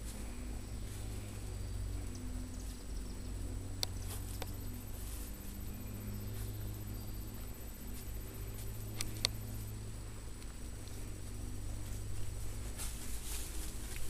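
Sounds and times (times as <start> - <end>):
puppies rustling through plants: 0.0 - 14.0
steady low hum: 0.0 - 14.0
sharp clicks: 8.9 - 9.4.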